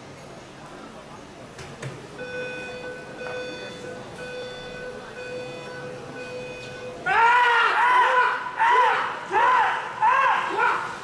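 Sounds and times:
countdown timer beeping: 2.2s - 7.1s
rhythmic shouts: 7.0s - 11.0s.

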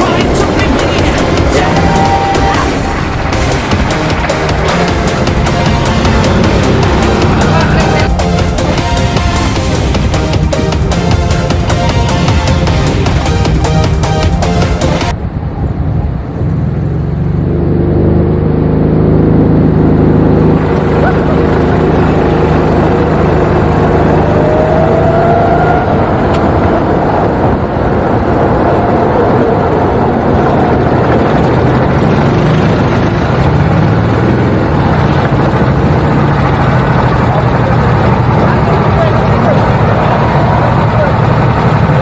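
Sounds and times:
go-kart engine running: 0.0s - 42.0s
wind noise: 19.2s - 42.0s.

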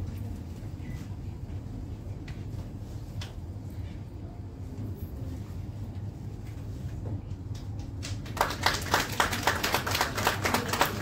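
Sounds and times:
low room hum: 0.0s - 11.0s
audience clapping: 7.6s - 11.0s.

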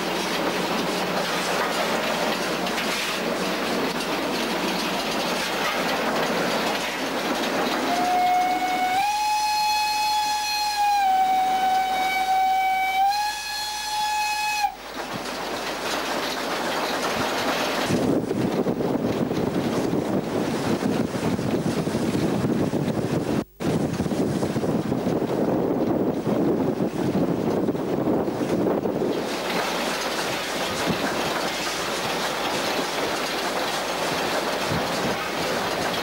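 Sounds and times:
locomotive wheels on rails: 0.0s - 36.0s
steam locomotive whistle: 7.7s - 14.8s.

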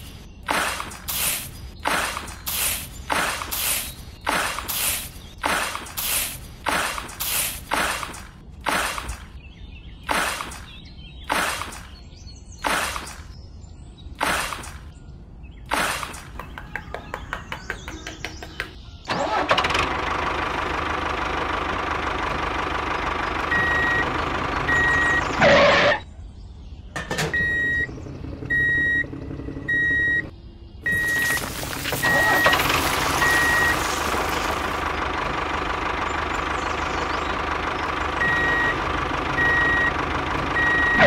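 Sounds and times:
engine running: 0.0s - 9.4s, 10.0s - 13.4s, 14.2s - 14.9s, 15.6s - 26.1s, 26.9s - 41.0s
engine cranking clicks: 19.1s - 20.3s, 30.9s - 35.5s
reversing alarm beeping: 23.5s - 24.1s, 24.7s - 26.0s, 27.2s - 27.9s, 28.5s - 34.0s, 38.2s - 38.8s, 39.4s - 40.0s, 40.6s - 41.0s.

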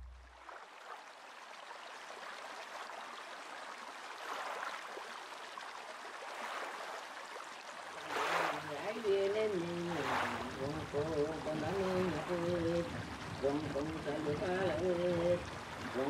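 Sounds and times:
running water: 0.0s - 16.0s.

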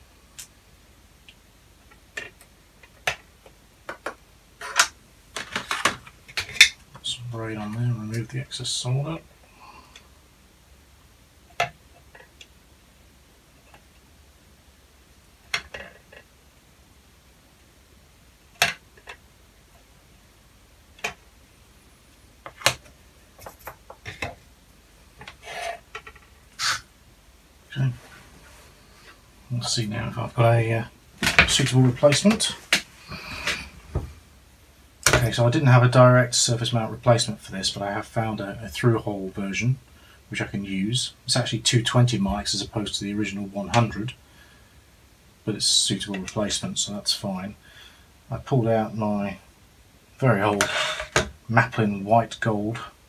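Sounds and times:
rattles and rustles: 22.4s - 24.5s
rasping scrape on bench: 26.6s - 26.9s, 50.6s - 51.2s.

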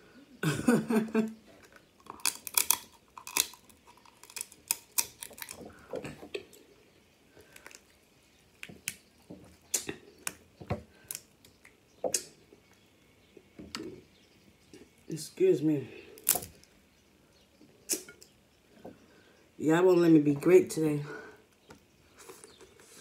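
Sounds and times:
crab shells cracking: 1.6s - 6.6s, 7.4s - 9.1s, 9.7s - 12.3s, 16.2s - 16.8s.

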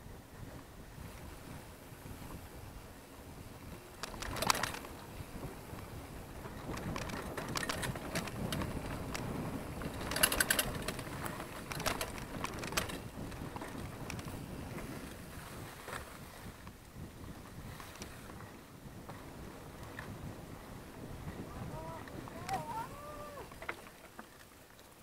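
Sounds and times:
bike chain and frame rattling: 4.0s - 5.0s, 6.4s - 14.4s
tyres rumbling on dirt: 6.4s - 14.9s.

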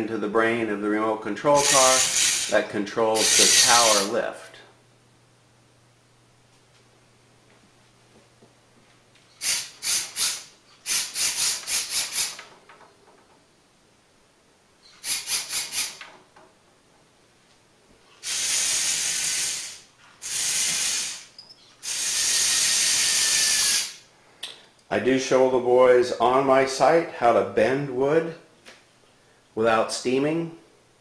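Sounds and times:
small electric motors whirring: 1.6s - 2.6s, 3.2s - 4.1s, 9.4s - 12.5s, 14.9s - 16.0s, 18.2s - 24.0s.

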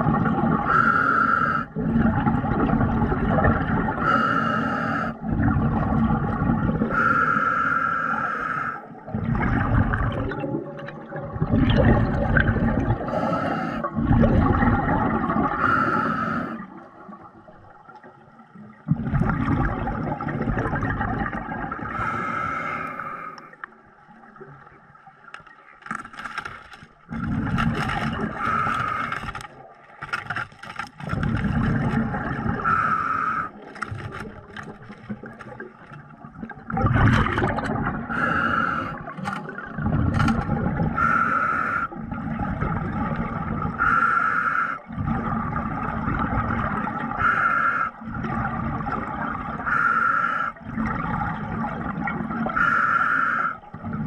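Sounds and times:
exhaled bubbles gurgling underwater: 0.0s - 25.8s, 27.0s - 30.0s, 30.6s - 54.0s
diver hissing breaths: 0.7s - 1.7s, 4.0s - 5.2s, 6.9s - 8.9s, 13.0s - 13.9s, 15.6s - 16.7s, 22.0s - 23.6s, 28.4s - 29.3s, 32.6s - 33.6s, 38.1s - 39.1s, 41.0s - 42.0s, 43.8s - 44.8s, 47.2s - 48.0s, 49.7s - 50.6s, 52.6s - 53.6s.

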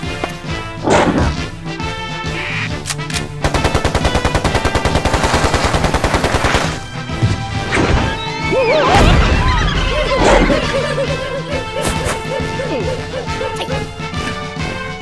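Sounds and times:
cartoon background music: 0.0s - 15.0s
rapid machine-gun-like rattle: 3.4s - 6.7s.

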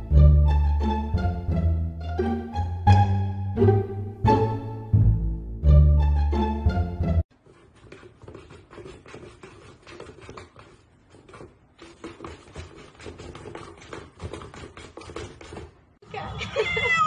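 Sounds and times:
kitten pawing cardboard box: 7.3s - 15.8s.

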